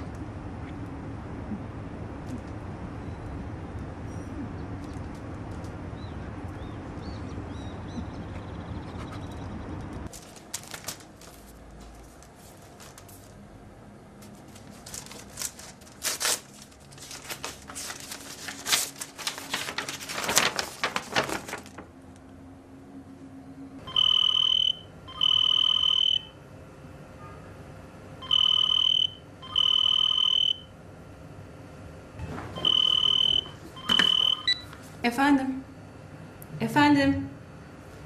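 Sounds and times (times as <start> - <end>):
paper rustling: 10.1 - 13.4, 14.2 - 21.9
telephone ringing: 23.8 - 26.4, 28.2 - 30.7, 32.6 - 34.7.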